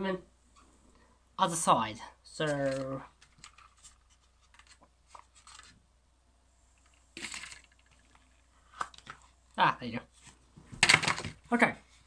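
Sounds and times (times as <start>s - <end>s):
box and packaging rustling: 2.4s - 5.8s, 6.8s - 9.4s, 10.1s - 11.5s.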